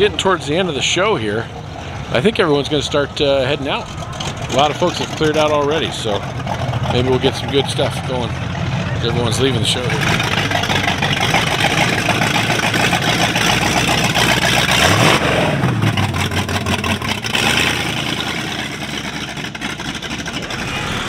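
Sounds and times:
car engine revving driving past: 20.4 - 21.0.

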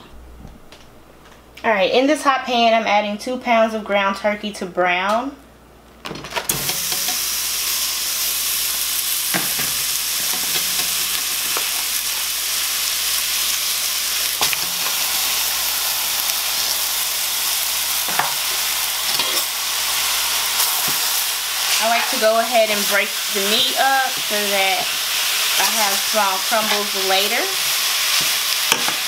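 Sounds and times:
meat sizzling in a pan: 6.5 - 29.0.

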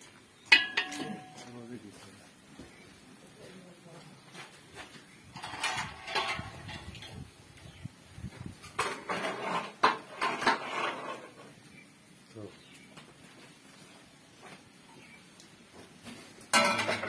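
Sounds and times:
metal ladle scraping pots: 0.5 - 1.4, 5.3 - 7.2, 8.6 - 11.6, 16.5 - 17.0
sharp metal clanks: 0.5 - 1.5, 16.5 - 17.0.

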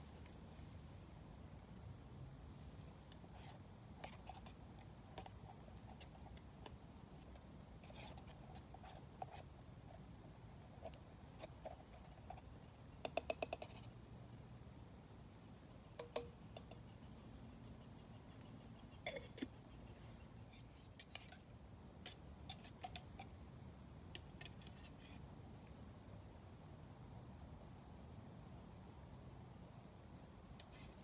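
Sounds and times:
camp cooking kit clicks and scrapes: 20.8 - 21.4, 22.0 - 23.3.

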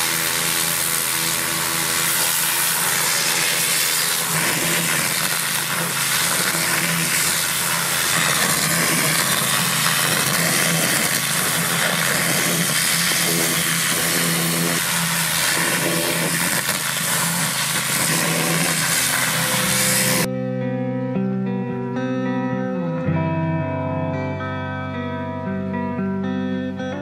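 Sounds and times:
pressure washer motor hum: 0.0 - 20.3
water jet hissing against log: 0.0 - 20.3.

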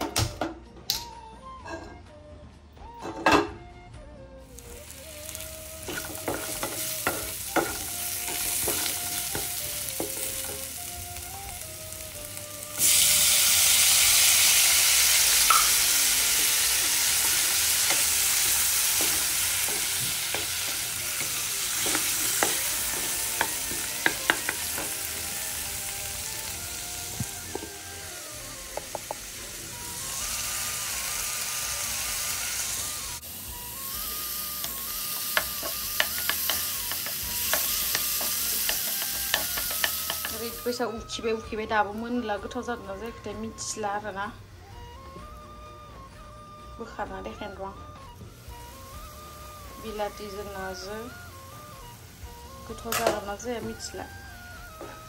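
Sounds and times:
food sizzling in a frying pan: 4.4 - 44.2, 47.1 - 55.0
tomatoes hitting hot oil: 4.6 - 11.6, 12.6 - 29.5, 33.6 - 40.8, 48.5 - 54.1.

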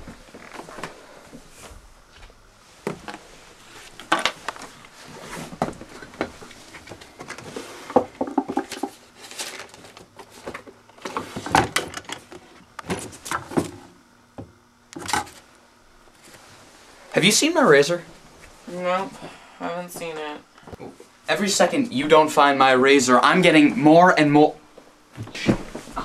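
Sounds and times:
objects clattering on a wooden table: 5.6 - 13.8.

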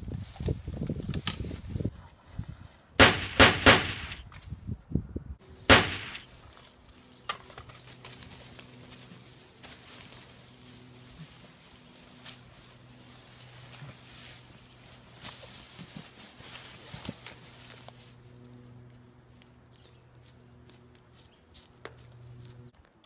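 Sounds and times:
gunshots with echoes: 3.0 - 4.2, 5.7 - 6.3
footsteps through dry leaves: 5.7 - 22.7.

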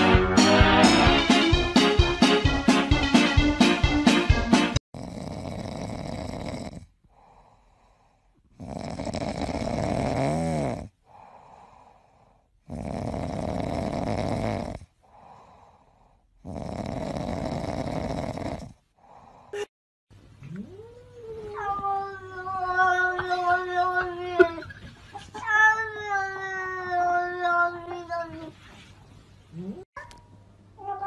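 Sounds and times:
cat snoring: 5.0 - 7.8, 8.5 - 11.9, 12.6 - 14.9, 16.4 - 18.8
cat breathing: 7.1 - 8.4, 11.0 - 12.6.

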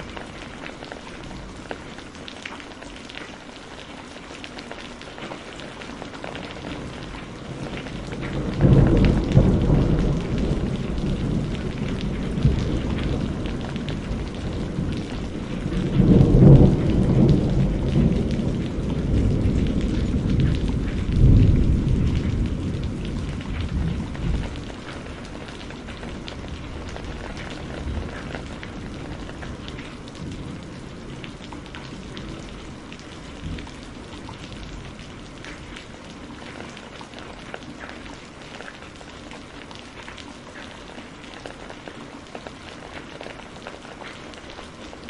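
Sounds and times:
rain falling: 0.0 - 45.0
rolling thunder: 6.6 - 35.8.

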